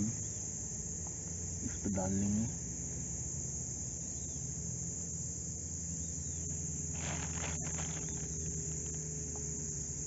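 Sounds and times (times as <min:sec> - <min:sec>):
crickets chirping: 0:00.0 - 0:10.0
low steady hum: 0:00.0 - 0:10.0
brief rustle: 0:07.0 - 0:09.0.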